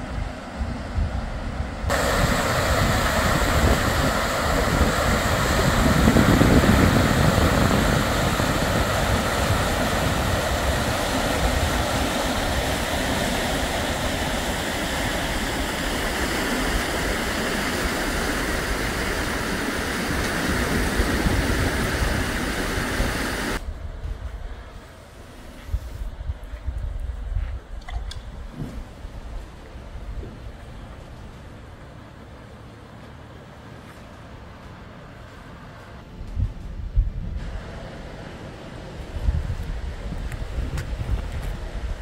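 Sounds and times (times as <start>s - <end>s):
turbulent water rushing: 1.9s - 23.6s.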